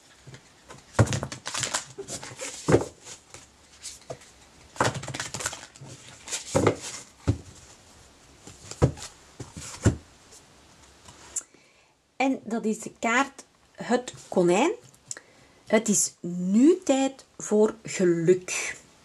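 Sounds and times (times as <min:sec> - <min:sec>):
cards being shuffled: 0:00.2 - 0:07.4.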